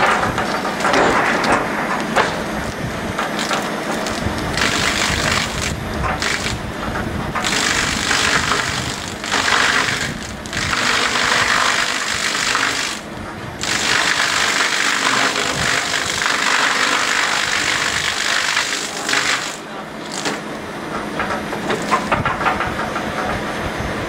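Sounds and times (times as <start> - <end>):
milling shaft chipping wood: 0.0 - 23.3.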